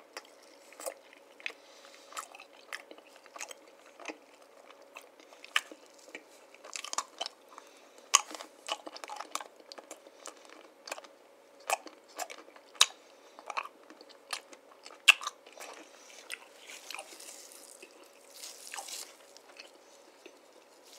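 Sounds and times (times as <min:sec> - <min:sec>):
cookie crunching: 0:00.0 - 0:20.9
soft rustle: 0:15.9 - 0:20.9.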